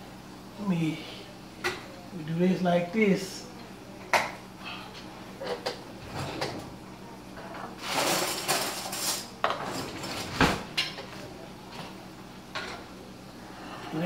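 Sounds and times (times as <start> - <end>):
metal utensils clattering: 7.4 - 11.1.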